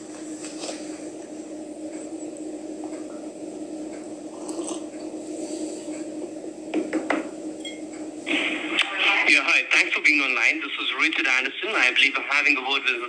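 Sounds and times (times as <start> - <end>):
phone line hum: 0.0 - 10.3.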